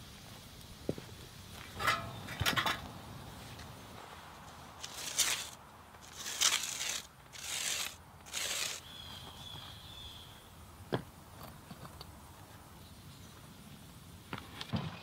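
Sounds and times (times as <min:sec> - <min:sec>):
broom sweeping grit on bricks: 0:04.8 - 0:09.0.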